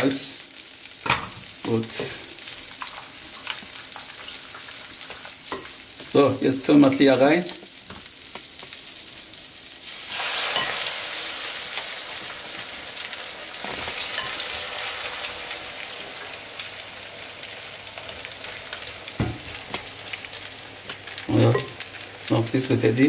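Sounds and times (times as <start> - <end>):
pasta sizzling in frying pan: 0.0 - 23.0
spoon knocking and scraping pan: 1.0 - 1.8, 2.8 - 6.2, 7.5 - 8.8, 10.5 - 11.0, 13.6 - 14.7, 19.1 - 19.9, 20.9 - 21.8.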